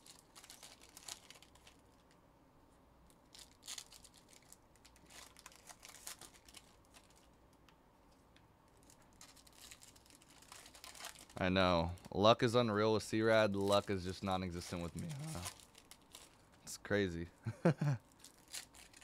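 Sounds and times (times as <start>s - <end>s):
wrappers crinkling and tearing: 0.0s - 2.2s, 3.1s - 7.4s, 8.7s - 12.1s, 13.1s - 16.7s, 18.0s - 19.0s.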